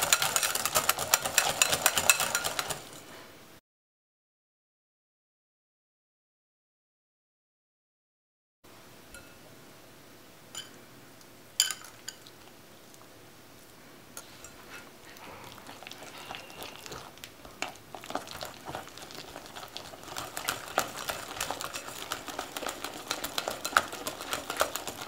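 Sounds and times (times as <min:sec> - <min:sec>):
whisk scraping glass bowl: 0:00.0 - 0:03.1, 0:14.2 - 0:25.0.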